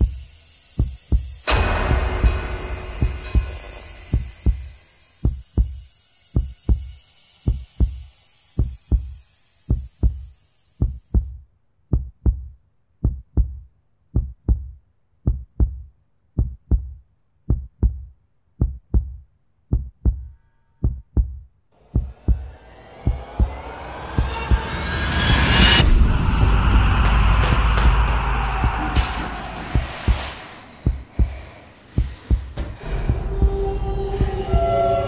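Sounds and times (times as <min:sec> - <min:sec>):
high hiss: 0:00.0 - 0:11.3, 0:21.8 - 0:35.0
heartbeat double thumps: 0:00.8 - 0:06.9, 0:07.5 - 0:24.8, 0:25.8 - 0:34.8
rising whoosh: 0:21.8 - 0:35.0.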